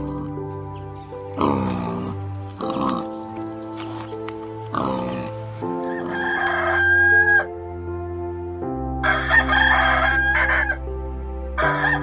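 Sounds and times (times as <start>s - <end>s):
background music: 0.0s - 12.0s
rooster crowing: 5.8s - 7.5s, 9.0s - 10.9s, 11.6s - 12.0s.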